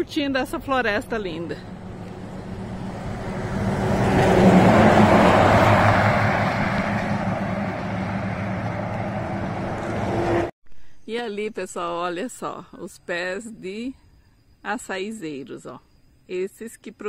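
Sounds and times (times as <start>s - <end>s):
tanker truck passing: 0.8s - 10.5s.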